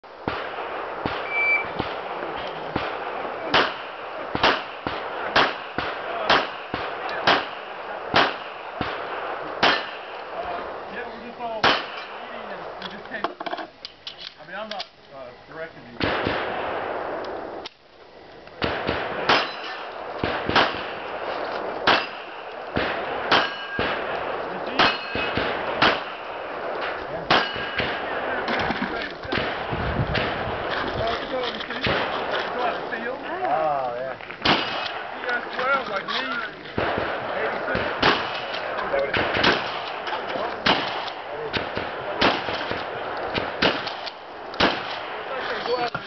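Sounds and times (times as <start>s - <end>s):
pistol shot: 0.2s - 10.2s, 11.6s - 12.2s, 16.0s - 17.3s, 18.6s - 28.2s, 34.4s - 35.8s, 36.8s - 45.3s
faint sharp cracks: 17.2s - 46.0s
steel plate clanging: 23.3s - 23.8s, 24.8s - 25.4s, 26.8s - 27.8s.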